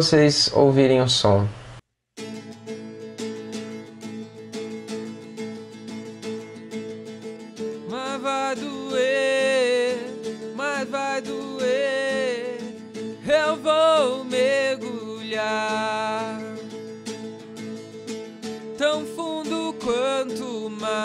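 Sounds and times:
acoustic guitar strumming: 2.2 - 21.0
man singing into a microphone: 7.8 - 16.7, 18.8 - 21.0.

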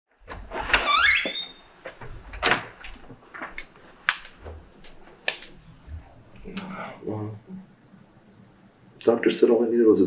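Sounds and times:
door hinge squeak: 0.5 - 1.7.

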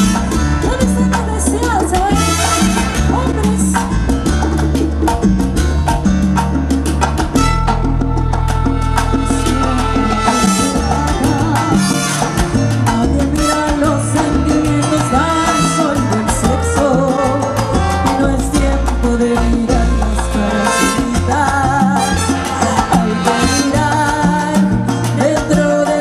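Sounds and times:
woman singing lead: 0.0 - 4.1, 9.1 - 26.0
salsa band playing: 0.0 - 26.0.

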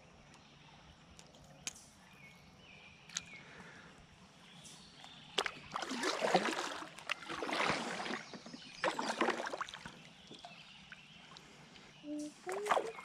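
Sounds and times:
paddle splashing in water: 5.3 - 11.1, 12.5 - 13.0.

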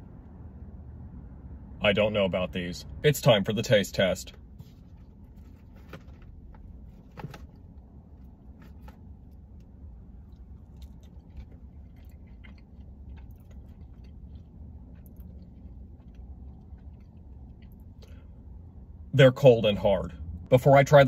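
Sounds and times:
low hum: 0.0 - 20.6
man chewing crunchy fries: 4.8 - 18.8.

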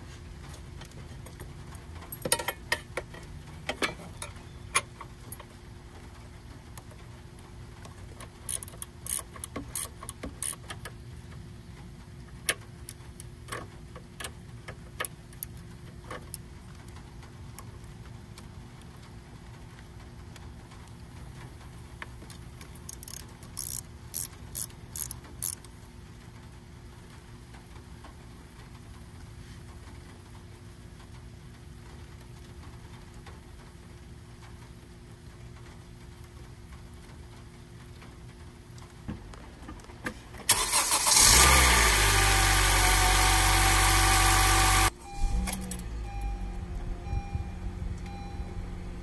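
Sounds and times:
faint steady hum: 0.0 - 49.0
wrench clicking on nut: 8.5 - 10.6, 22.9 - 25.6.

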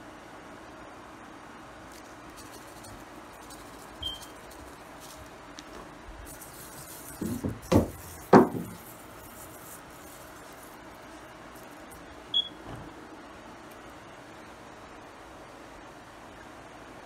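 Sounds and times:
faint steady hiss: 0.0 - 17.0
hand patting meat thumps: 7.2 - 9.0.

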